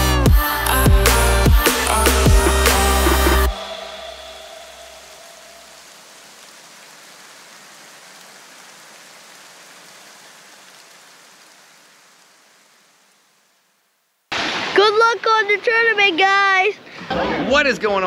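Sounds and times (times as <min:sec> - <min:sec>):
rain-like hiss: 0:03.0 - 0:17.1.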